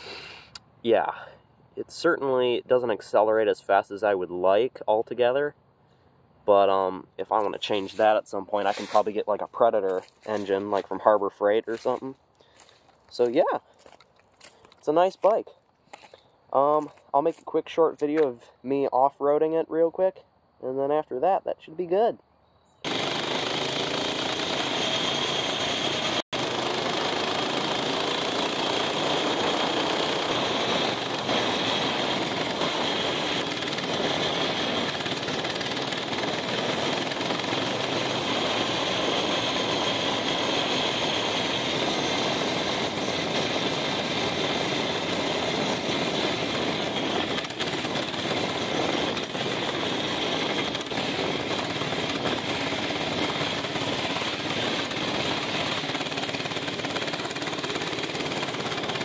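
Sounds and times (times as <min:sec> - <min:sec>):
small bike engine running: 0:22.8 - 0:59.0.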